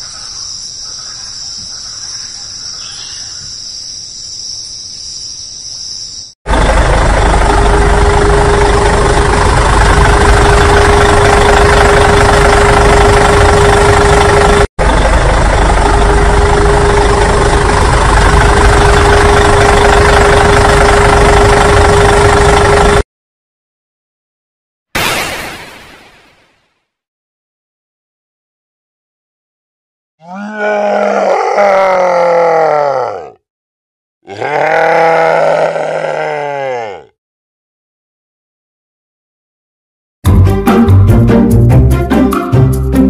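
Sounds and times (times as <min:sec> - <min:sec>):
crickets chirping: 0:00.0 - 0:06.3
tractor engine idling: 0:06.5 - 0:23.0.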